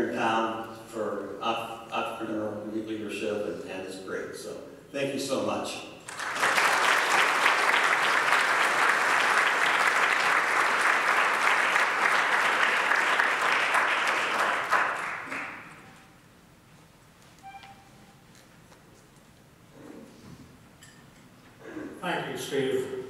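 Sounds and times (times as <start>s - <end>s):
audience applauding: 6.1s - 15.9s.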